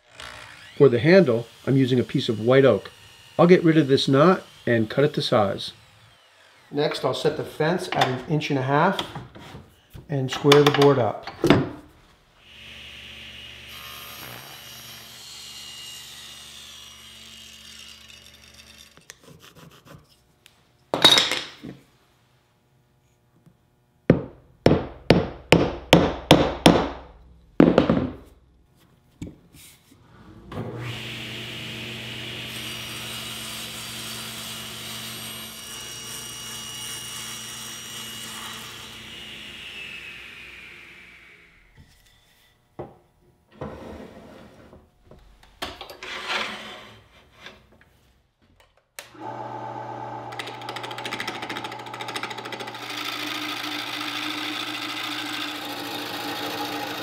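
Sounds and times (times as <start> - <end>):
table saw cutting wood: 0.0 - 8.2, 12.4 - 20.0, 30.6 - 41.8, 49.1 - 57.0
loud knock on wood: 24.1 - 27.0, 27.6 - 28.2.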